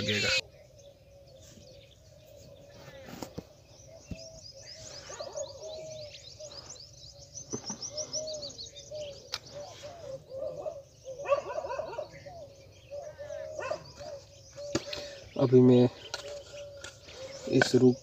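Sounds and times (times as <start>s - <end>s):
birds chirping and twittering: 0.0s - 18.0s
low bird calls: 0.0s - 18.0s.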